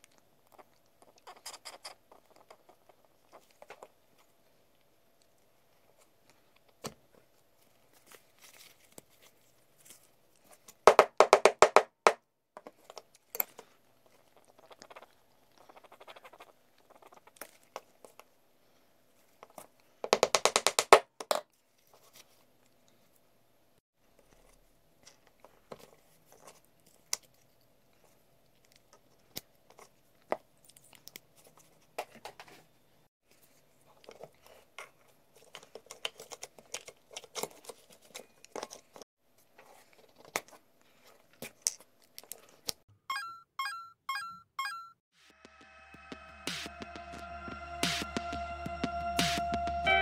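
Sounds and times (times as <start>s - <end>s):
faint handling noises: 0.0s - 10.8s.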